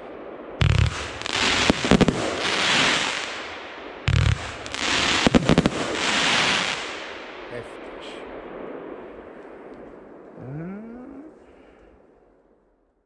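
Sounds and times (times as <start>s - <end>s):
hissing crackle of stars: 0.0s - 12.8s
firework burst cracks: 0.6s - 7.6s.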